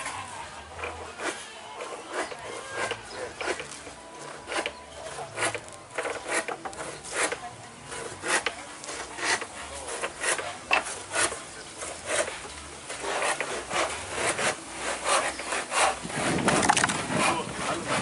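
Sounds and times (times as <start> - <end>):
hand tool rasping wood: 0.0 - 18.0.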